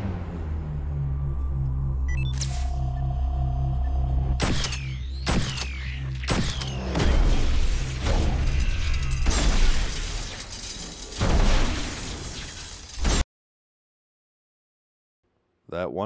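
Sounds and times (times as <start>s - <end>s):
shattering: 6.3s - 13.2s
clattering metal debris: 6.6s - 13.2s.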